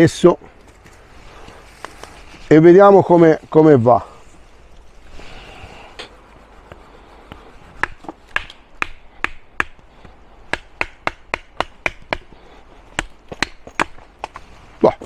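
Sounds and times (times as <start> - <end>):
knife chopping wood: 6.7 - 14.4.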